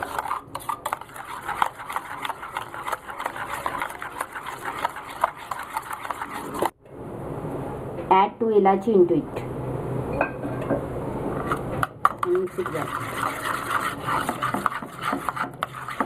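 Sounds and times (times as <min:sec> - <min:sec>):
metal spoon scraping metal bowl: 0:00.0 - 0:06.8, 0:11.4 - 0:16.0.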